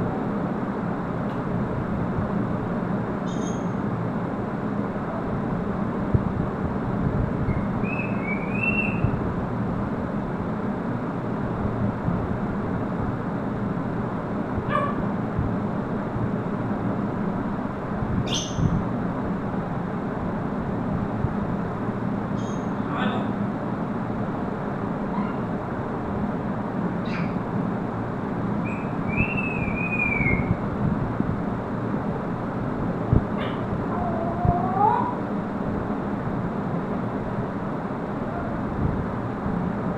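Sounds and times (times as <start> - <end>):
faint hum: 0.0 - 39.9
steady background noise: 0.0 - 39.9
parrot whistling: 7.8 - 9.1, 28.6 - 30.5.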